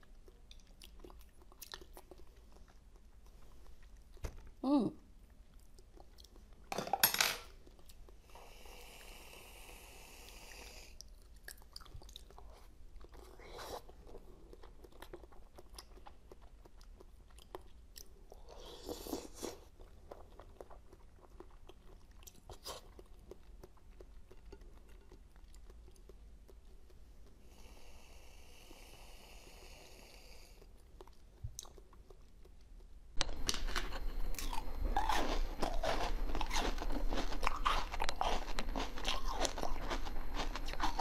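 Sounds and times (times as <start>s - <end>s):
chewing and biting jelly sweets: 0.0s - 6.7s, 7.5s - 8.4s, 10.2s - 27.7s, 30.6s - 41.0s.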